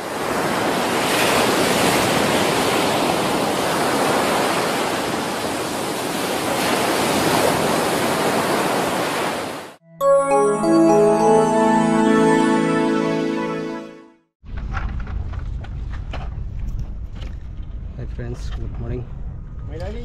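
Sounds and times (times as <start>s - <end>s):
waves breaking on shore: 0.0s - 9.7s.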